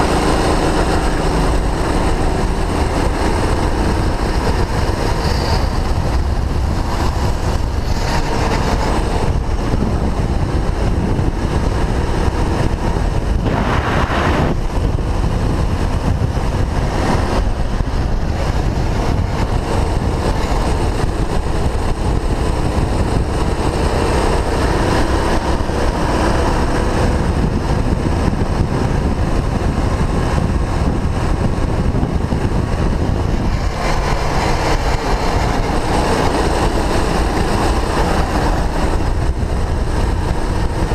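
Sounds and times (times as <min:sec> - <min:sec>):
go-kart engine racing: 0:00.0 - 0:40.9
wind rush on microphone: 0:00.0 - 0:40.9.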